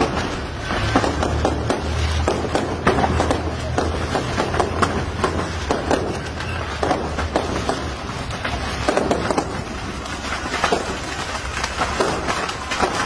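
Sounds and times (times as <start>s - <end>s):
fireworks pops and bangs: 0.0s - 13.0s.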